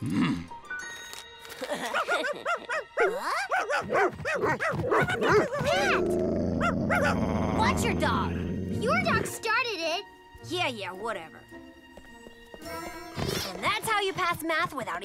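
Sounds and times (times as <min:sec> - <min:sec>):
cartoon dogs barking and yapping: 0:01.9 - 0:09.4.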